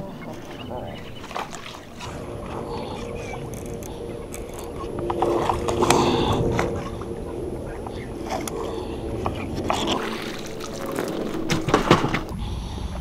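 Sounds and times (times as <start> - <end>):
steady low hum: 0.0 - 13.0
fish splashing at water surface: 8.3 - 12.3.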